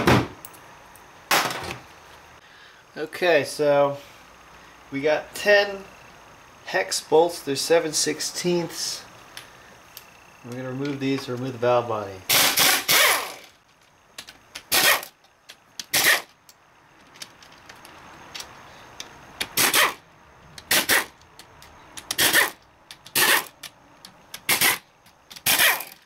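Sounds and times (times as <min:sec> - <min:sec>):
pneumatic wrench bursts: 0:12.3 - 0:13.6, 0:14.6 - 0:15.2, 0:15.8 - 0:16.4, 0:19.4 - 0:20.0, 0:20.6 - 0:21.2, 0:22.0 - 0:23.7, 0:24.3 - 0:26.0.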